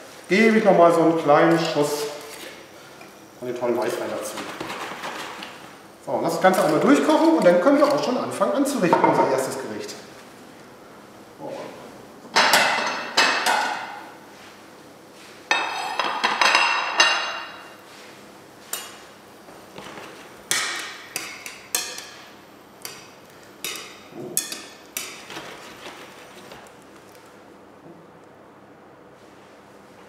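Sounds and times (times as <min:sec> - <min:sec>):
kitchenware clattering: 0:12.3 - 0:14.0, 0:15.5 - 0:17.7.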